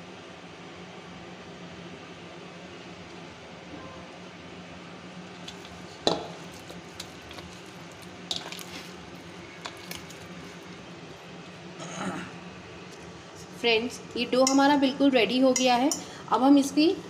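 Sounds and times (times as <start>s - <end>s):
dough kneaded by hand in bowl: 5.4s - 10.9s.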